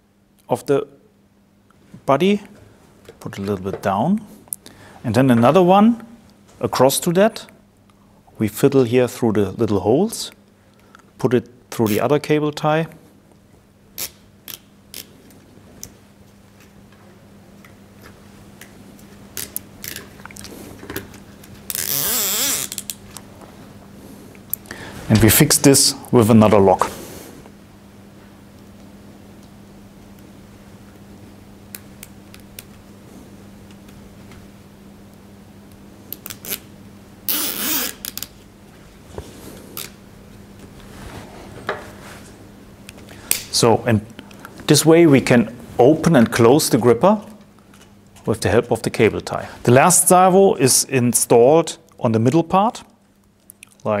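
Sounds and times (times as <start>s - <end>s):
cable tie ratcheting zip: 14.0s - 15.1s, 21.7s - 23.0s, 36.2s - 36.7s, 37.3s - 38.4s.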